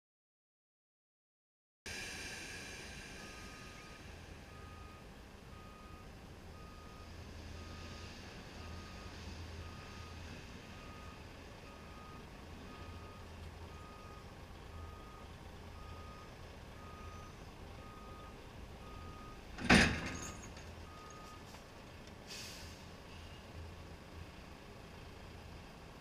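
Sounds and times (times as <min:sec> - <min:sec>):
diesel engine running: 0:01.9 - 0:26.0
truck reversing alarm beeping: 0:02.6 - 0:21.6
short hiss: 0:22.2 - 0:23.4.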